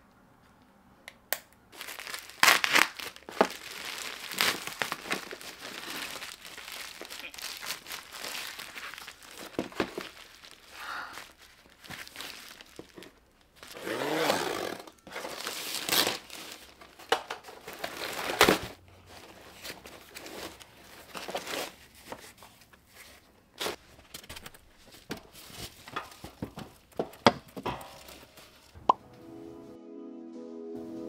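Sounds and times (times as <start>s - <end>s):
plastic wrapping crinkling: 1.7s - 28.8s
plastic tearing: 1.8s - 18.8s, 19.4s - 22.4s.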